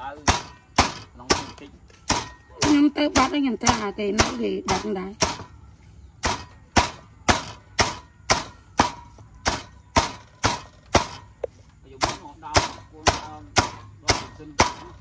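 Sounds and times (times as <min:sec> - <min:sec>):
chopping on wooden board: 0:00.2 - 0:05.5, 0:06.2 - 0:11.3, 0:12.0 - 0:15.0.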